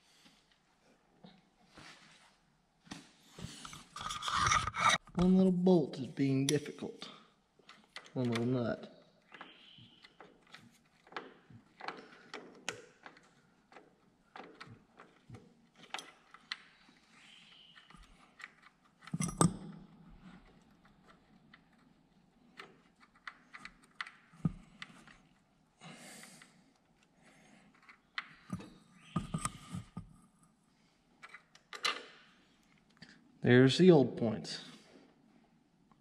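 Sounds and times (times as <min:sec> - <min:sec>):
metal clicks and scrapes of tool: 0:03.8 - 0:05.0.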